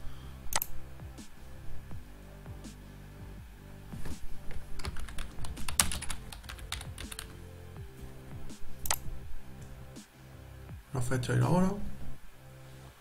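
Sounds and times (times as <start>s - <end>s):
soft background music: 0.0s - 13.0s
typing on computer keyboard: 4.8s - 7.4s.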